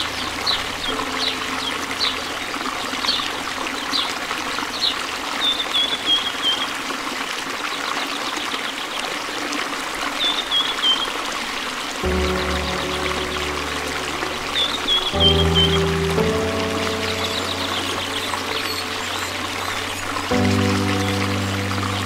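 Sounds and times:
bird chirping: 0:00.0 - 0:06.7, 0:12.0 - 0:22.0
river water rushing over rocks: 0:00.0 - 0:22.0.

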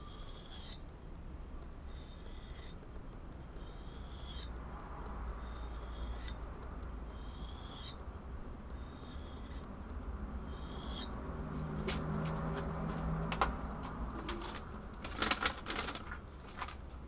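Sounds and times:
knife scraping sharpening rod: 0:00.0 - 0:00.8, 0:01.9 - 0:02.8, 0:03.6 - 0:04.6, 0:05.4 - 0:06.4, 0:07.1 - 0:08.0, 0:08.7 - 0:09.7, 0:10.5 - 0:11.2.

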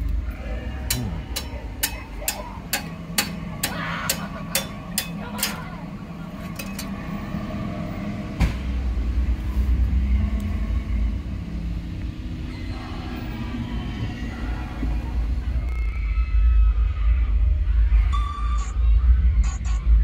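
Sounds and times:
car engine rumble: 0:00.0 - 0:15.7.

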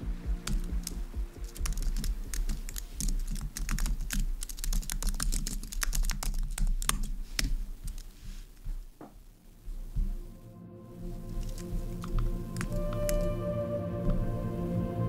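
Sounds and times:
fast typing on keyboard: 0:00.4 - 0:08.1, 0:11.4 - 0:13.4.

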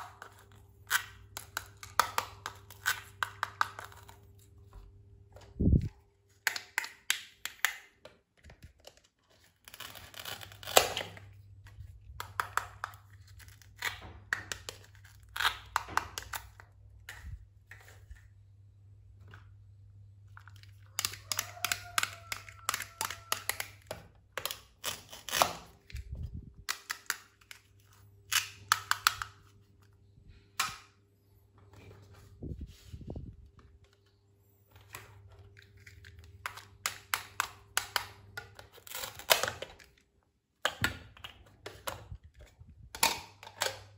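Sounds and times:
velcro tearing: 0:09.5 - 0:11.2.

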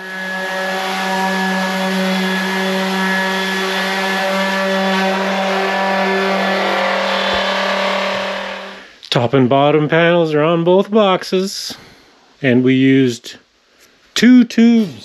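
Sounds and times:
power tool on aluminum sheet: 0:00.0 - 0:08.9.

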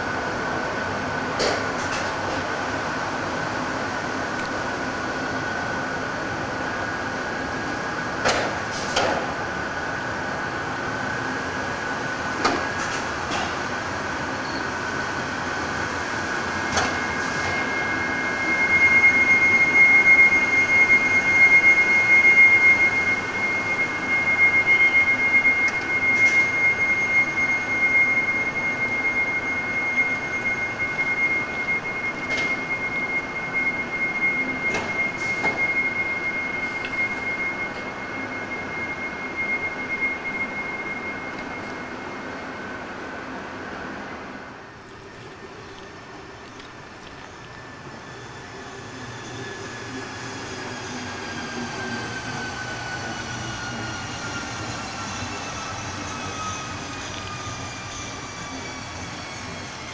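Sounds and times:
electric locomotive rolling past: 0:00.0 - 0:59.9
high steady squeal: 0:14.1 - 0:59.9.

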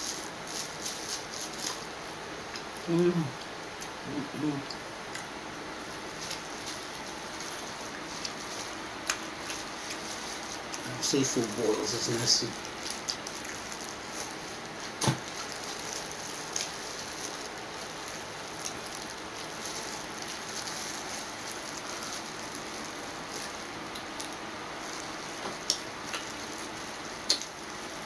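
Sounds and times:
plastic gloves crinkling: 0:00.0 - 0:02.1, 0:05.7 - 0:28.0
steady hiss: 0:00.0 - 0:28.0
crawfish shells cracking: 0:06.1 - 0:28.0.

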